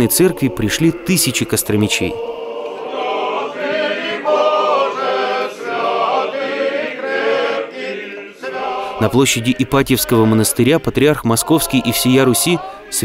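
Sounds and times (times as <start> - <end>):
choir chanting: 0.0 - 13.0.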